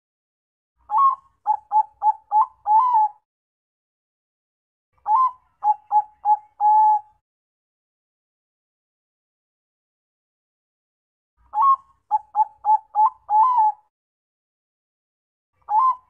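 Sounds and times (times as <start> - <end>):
dove cooing: 0.9 - 3.2, 5.1 - 7.1, 11.6 - 13.9, 15.7 - 16.0.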